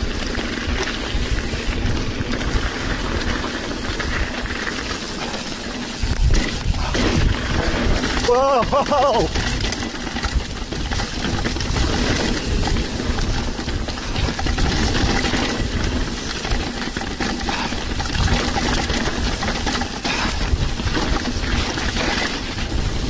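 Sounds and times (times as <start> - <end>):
bike rattling and knocking: 0.0 - 23.0
wind rushing on microphone: 6.0 - 16.1.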